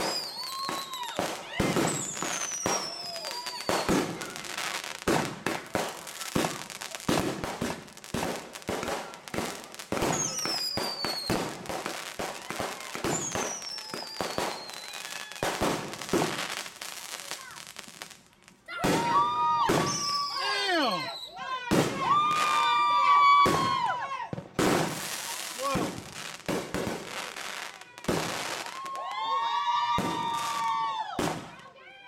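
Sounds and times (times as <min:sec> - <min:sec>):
falling firework whistle: 0:00.0 - 0:04.4, 0:10.0 - 0:11.5, 0:12.2 - 0:15.9, 0:18.8 - 0:24.0, 0:28.4 - 0:31.4
fireworks bangs and crackling: 0:00.0 - 0:32.0.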